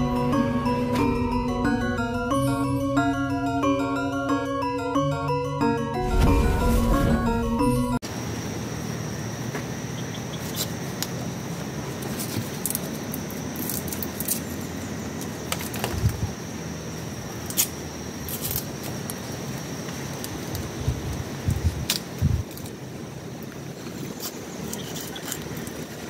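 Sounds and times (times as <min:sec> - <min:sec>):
intro music: 0:00.0 - 0:08.0
thin high tone: 0:00.0 - 0:08.0
steady outdoor hiss: 0:08.0 - 0:26.0
knife clicking and scraping stalk: 0:23.9 - 0:26.0.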